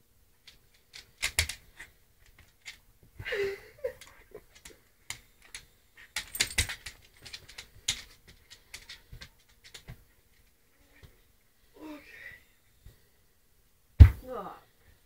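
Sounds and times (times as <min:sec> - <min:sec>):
dog claws clicking on wooden floor: 0:00.4 - 0:02.8, 0:04.0 - 0:10.0.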